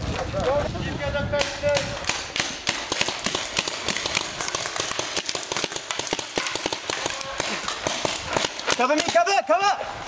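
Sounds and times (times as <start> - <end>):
game guns firing: 1.7 - 9.2.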